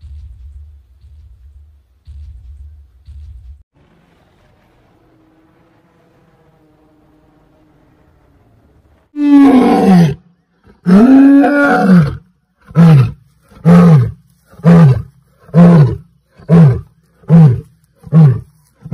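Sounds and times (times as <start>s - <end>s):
lion roaring: 9.2s - 18.9s.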